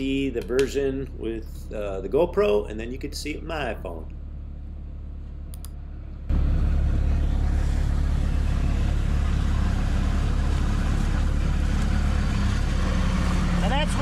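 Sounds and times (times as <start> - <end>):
diesel engine running: 0.0 - 14.0
low rumble: 0.0 - 14.0
faint clicks: 5.5 - 5.8.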